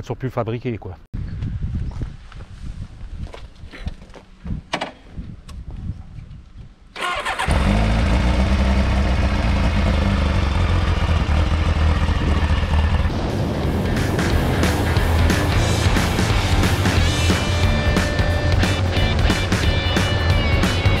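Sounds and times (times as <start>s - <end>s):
motorcycle engine starting and running: 7.0s - 21.0s.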